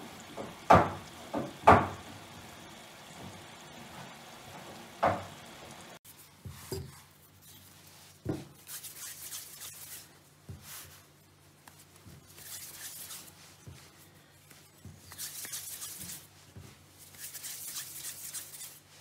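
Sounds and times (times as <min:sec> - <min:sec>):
hands rubbing dough: 0:06.0 - 0:19.0.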